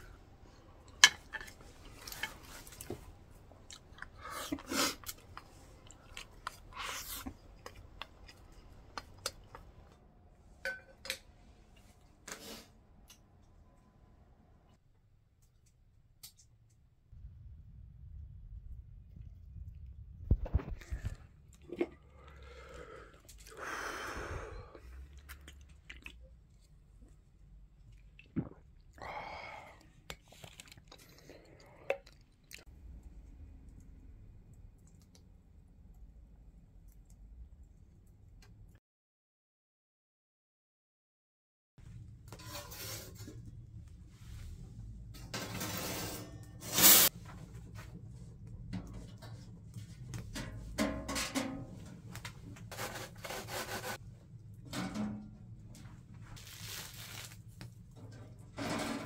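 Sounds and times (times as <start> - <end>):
loud metal scrape: 45.3 - 47.1.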